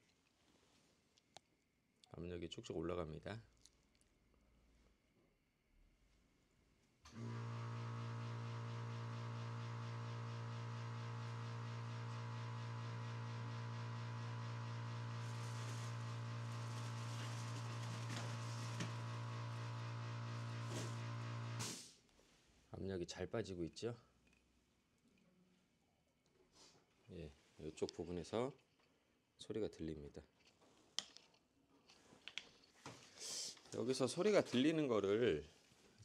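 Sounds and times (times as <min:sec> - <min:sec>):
air compressor running: 0:07.1 - 0:21.9.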